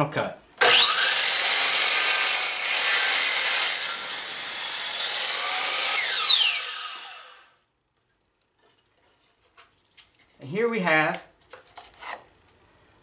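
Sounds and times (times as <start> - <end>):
miter saw motor whining: 0.6 - 7.5
saw cutting wood: 0.6 - 7.5.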